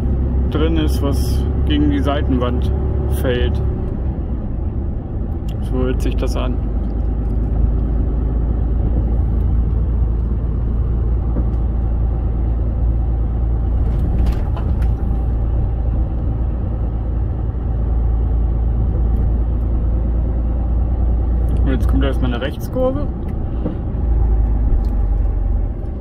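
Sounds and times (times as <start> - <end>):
diesel engine and road rumble: 0.0 - 26.0
clacking rattle in cab: 13.5 - 16.4.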